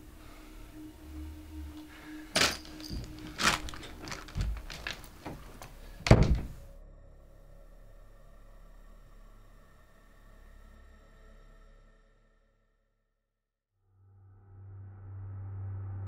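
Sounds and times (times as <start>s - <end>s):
door thud: 2.4s - 6.6s
door clicks and knocks: 4.0s - 6.6s.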